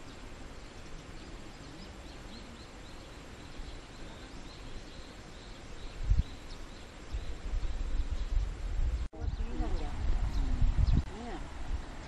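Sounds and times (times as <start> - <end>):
steady hiss: 0.0 - 9.1.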